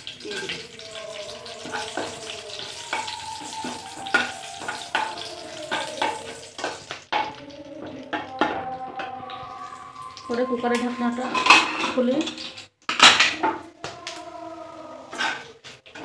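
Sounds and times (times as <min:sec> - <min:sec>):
spices sizzling in hot oil: 0:00.0 - 0:08.6
metal spatula scraping pan: 0:04.0 - 0:13.6.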